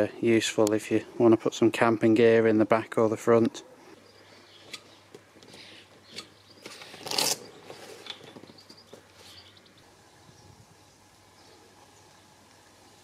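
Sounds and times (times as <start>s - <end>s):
strap scraping rustle: 4.6s - 9.6s.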